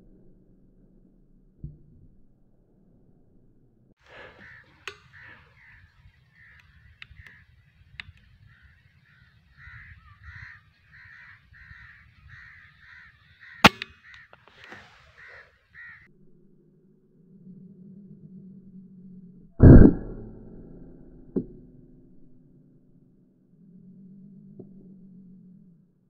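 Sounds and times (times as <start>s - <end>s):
crows cawing: 4.0s - 16.1s
sharp crack: 4.1s - 9.2s, 13.4s - 15.3s
faint clicks: 4.1s - 15.9s.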